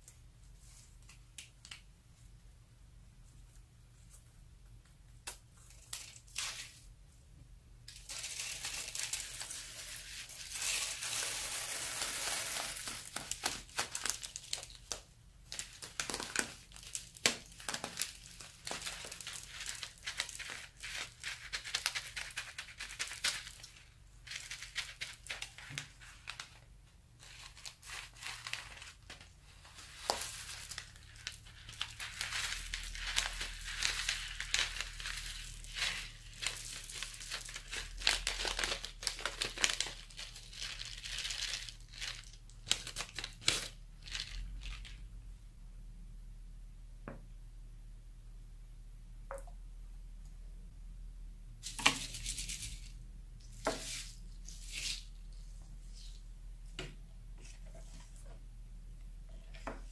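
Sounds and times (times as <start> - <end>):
plastic bag of foam beads crinkling: 7.9 - 45.2.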